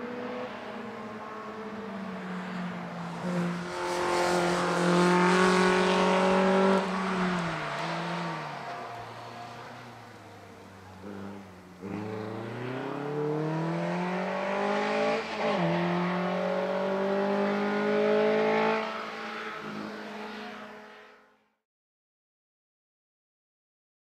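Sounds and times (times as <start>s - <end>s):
racing car engine revving: 11.0s - 19.0s.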